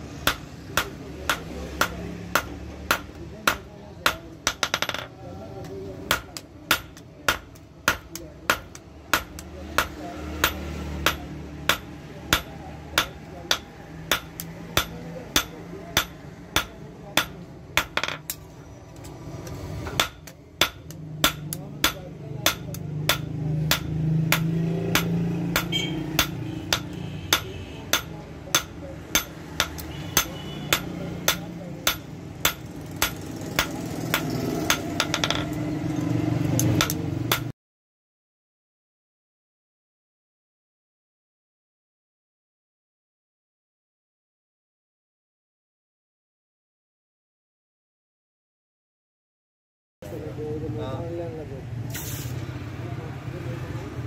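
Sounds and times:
hammer blows on anvil: 0:19.9 - 0:35.6.

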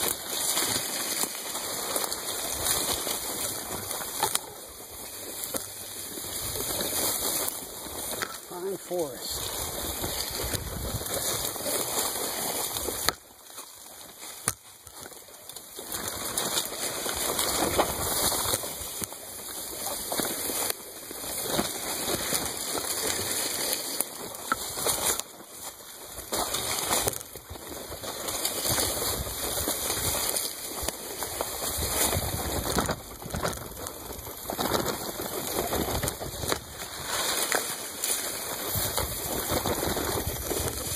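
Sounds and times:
bicycle tyres crunching on grass: 0:00.0 - 0:40.9
grass brushing against bike: 0:00.0 - 0:40.9
bike clicks and rattles: 0:09.5 - 0:40.9.

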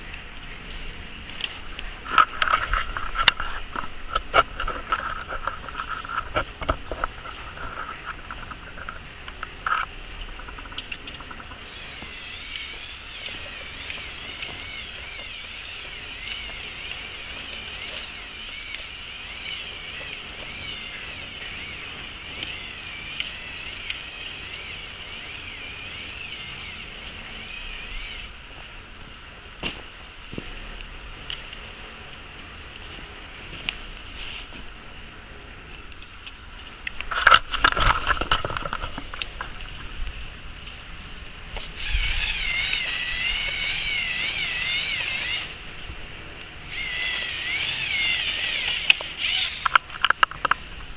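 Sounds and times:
toy electric motors whining: 0:11.6 - 0:28.4, 0:41.7 - 0:45.6, 0:46.6 - 0:50.5
sharp clicks: 0:46.7 - 0:50.6.

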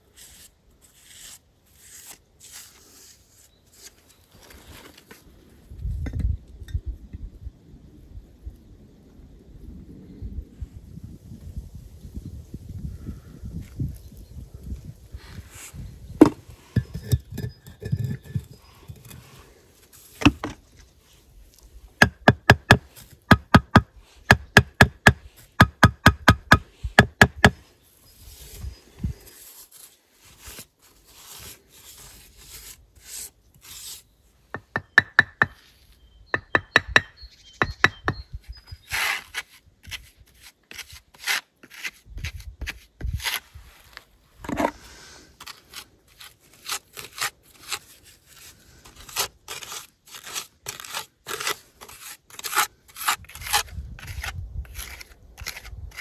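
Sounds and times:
scraping of mortar and brick: 0:00.1 - 0:05.2, 0:15.2 - 0:23.8, 0:28.1 - 0:56.0
trowel tapping bricks: 0:16.2 - 0:19.1, 0:34.5 - 0:35.6.

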